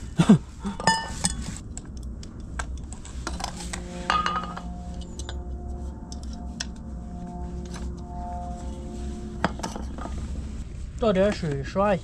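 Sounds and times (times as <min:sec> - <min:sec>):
ringing metal strikes: 0:03.2 - 0:10.6.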